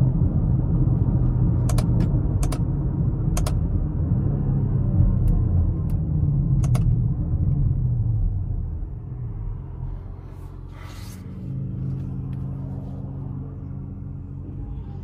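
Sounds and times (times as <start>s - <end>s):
car engine droning: 0.0s - 15.0s.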